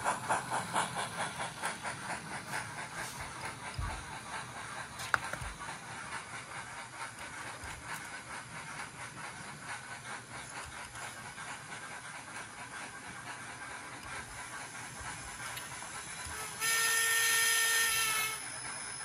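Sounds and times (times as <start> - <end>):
model steam locomotive hiss and chuff: 0.0 - 19.0.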